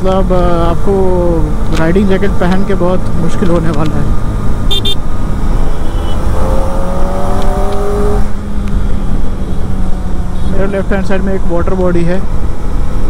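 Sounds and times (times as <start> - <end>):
wind and road rumble: 0.0 - 13.0
motorcycle engine accelerating: 2.6 - 11.0.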